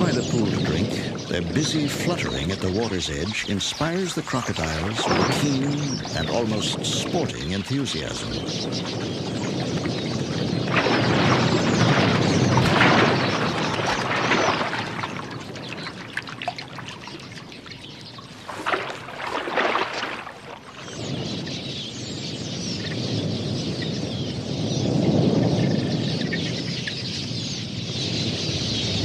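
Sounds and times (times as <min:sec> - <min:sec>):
water splashing: 0:00.0 - 0:21.1
rush of bird wings: 0:00.0 - 0:29.0
small birds chirping: 0:00.0 - 0:29.0.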